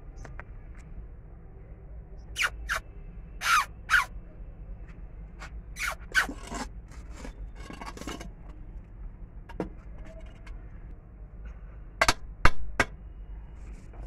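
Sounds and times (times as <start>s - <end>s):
scraping and rustling: 5.4s - 8.7s.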